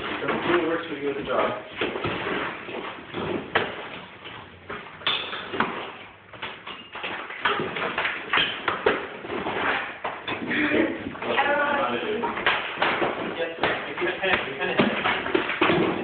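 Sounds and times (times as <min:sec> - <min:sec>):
plaster breaking off: 0:12.3 - 0:16.0.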